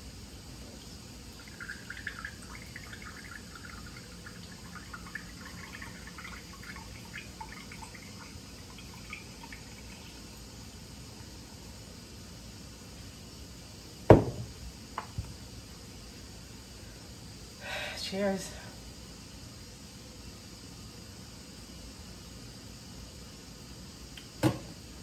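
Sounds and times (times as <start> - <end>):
juice trickling into glass: 0.6 - 11.4.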